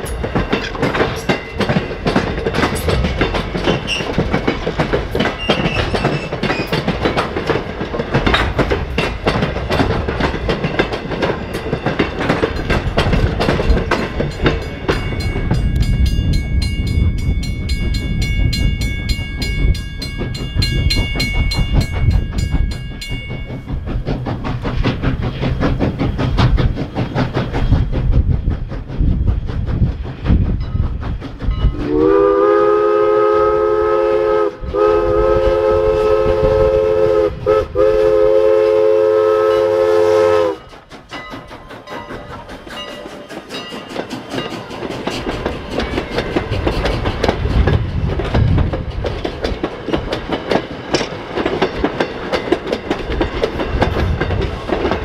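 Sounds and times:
cars clicking along rails: 0.0 - 55.0
steam locomotive rumbling: 0.0 - 55.0
chime steam whistle: 31.7 - 40.8.

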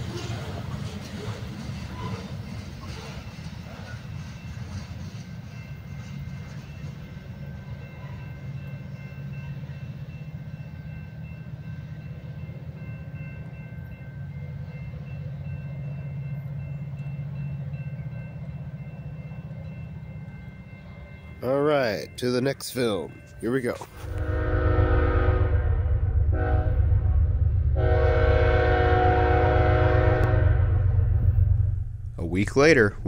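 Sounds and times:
freight train rumbling past: 0.0 - 33.0.

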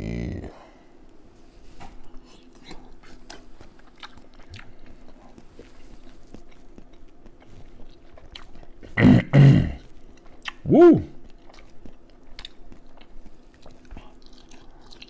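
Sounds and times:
man chewing with wet smacks: 1.0 - 15.0
short vocal sounds: 10.6 - 11.2.

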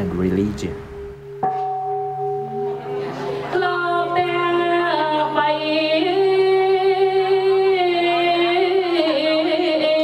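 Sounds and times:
steady low hum: 0.0 - 8.0.

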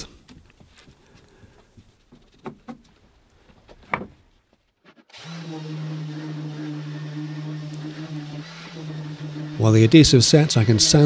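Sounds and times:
orbital sander on wood: 5.1 - 11.0.

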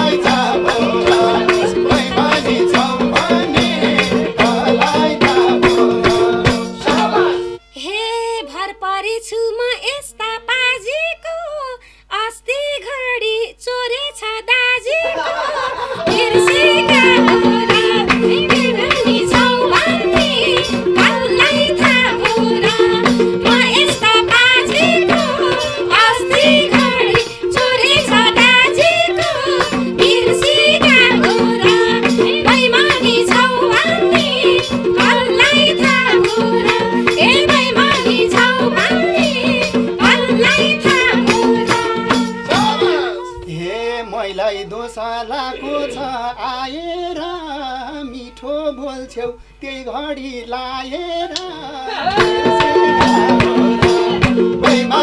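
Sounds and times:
hand drums: 0.0 - 7.7, 15.5 - 43.6, 52.0 - 55.0
droning harmonium: 0.0 - 7.8, 16.1 - 44.5
person singing: 0.0 - 11.6, 14.9 - 55.0.

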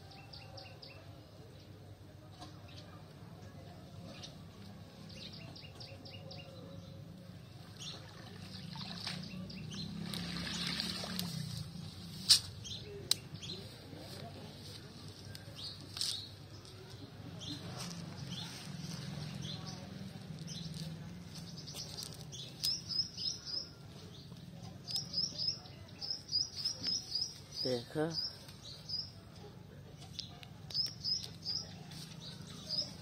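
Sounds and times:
birds chirping: 2.4 - 33.0
water streaming off net: 9.9 - 11.7.

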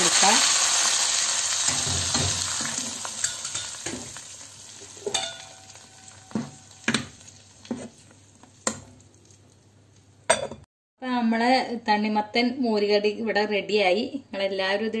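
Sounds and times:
hot oil sizzling in a pot: 0.0 - 9.8.

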